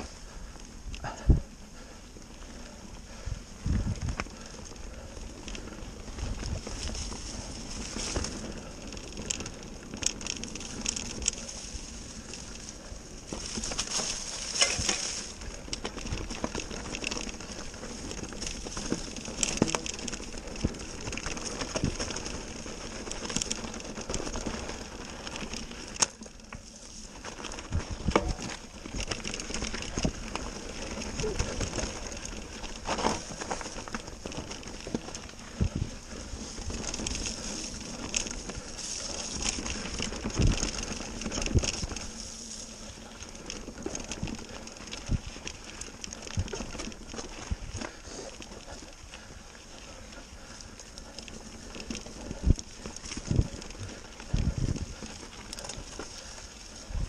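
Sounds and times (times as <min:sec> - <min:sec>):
bike tyres crackling over leaves: 0:00.0 - 0:57.0
bike knocks and rattles: 0:13.2 - 0:24.7, 0:27.3 - 0:42.6.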